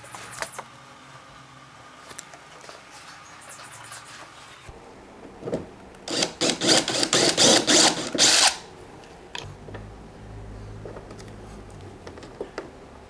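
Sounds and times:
cordless drill cutting plastic: 6.1 - 8.6.

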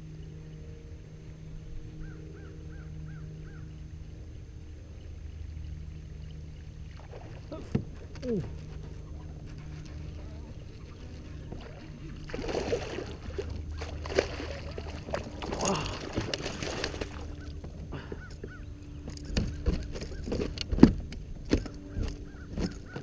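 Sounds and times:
fish thrashing and splashing: 7.0 - 18.2
net plunging into water: 11.6 - 17.2
gear knocking on plastic kayak: 16.0 - 23.0.

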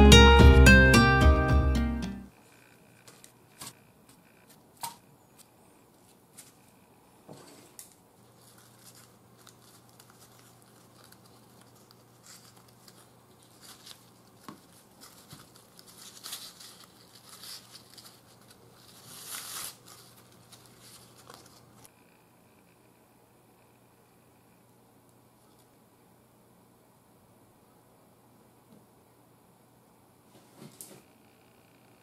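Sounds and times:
leaves rustling and crinkling: 7.7 - 21.9.

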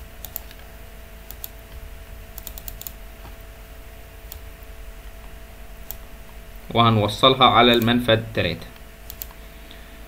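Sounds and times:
faint electrical hum: 0.0 - 10.0
keyboard keystrokes: 0.2 - 0.6, 1.3 - 1.6, 2.3 - 3.0, 9.0 - 9.4
computer mouse clicks: 0.2 - 1.6, 2.3 - 3.0, 4.3 - 4.5, 5.8 - 6.0, 7.7 - 7.9, 8.7 - 9.4.

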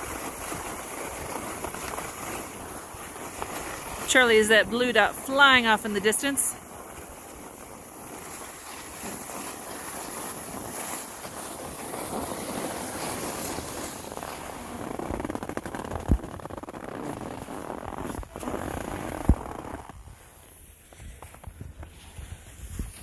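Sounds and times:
skis sliding on snow: 0.0 - 23.0
wind on microphone: 20.9 - 23.0.

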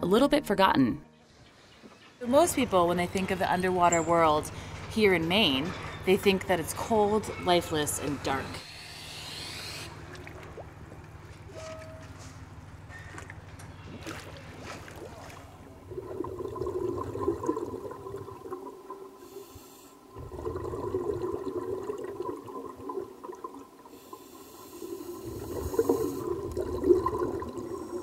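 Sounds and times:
diver exhaling bubbles: 14.0 - 19.2, 20.1 - 28.0
regulator inhalation hiss: 19.2 - 20.1, 23.9 - 26.3.

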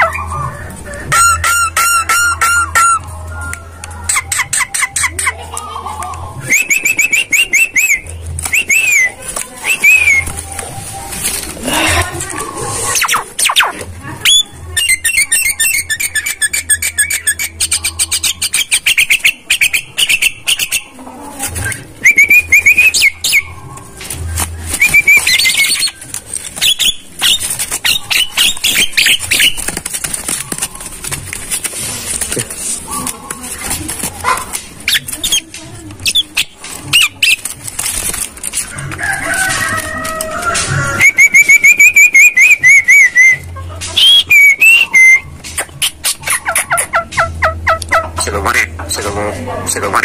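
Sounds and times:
bird chattering and whistling: 1.0 - 5.4, 6.4 - 10.4, 12.8 - 21.0, 21.6 - 23.6, 24.7 - 29.8, 34.8 - 37.5, 41.0 - 50.0.

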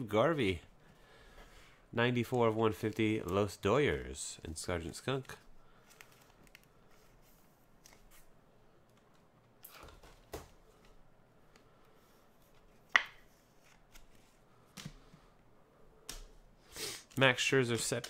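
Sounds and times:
cards sliding and shuffling: 5.2 - 8.3, 10.8 - 15.2.

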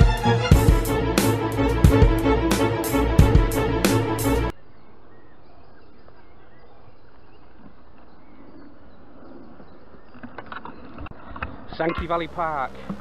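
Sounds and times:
violin music: 0.0 - 4.5
faint outdoor background hiss: 4.5 - 10.5, 11.1 - 13.0
faint birdsong: 4.5 - 13.0.

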